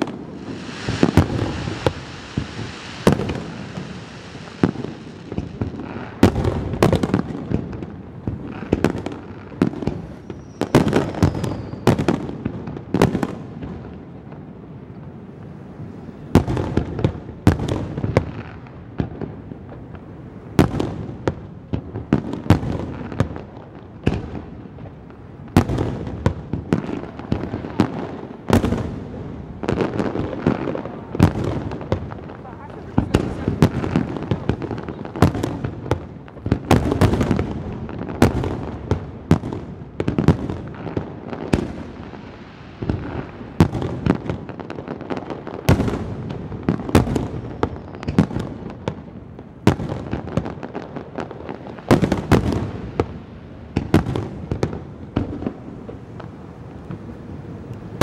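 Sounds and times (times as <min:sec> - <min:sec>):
firework shells bursting: 0:00.0 - 0:12.0
firework hiss: 0:00.0 - 0:13.2, 0:25.5 - 0:48.7.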